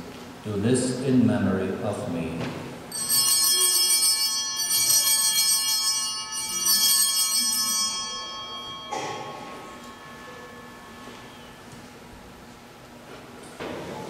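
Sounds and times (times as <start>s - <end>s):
altar bells ringing: 2.9s - 12.5s.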